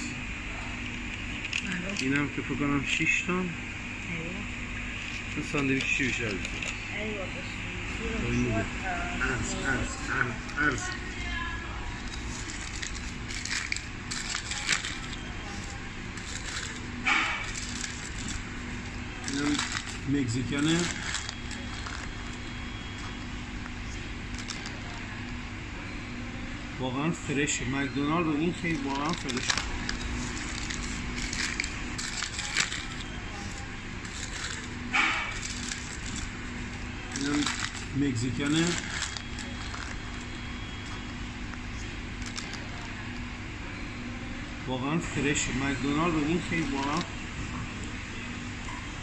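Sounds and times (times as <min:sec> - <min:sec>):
paper wrapper crinkling: 0:04.9 - 0:07.0, 0:09.2 - 0:25.5, 0:27.3 - 0:43.5, 0:45.2 - 0:47.2.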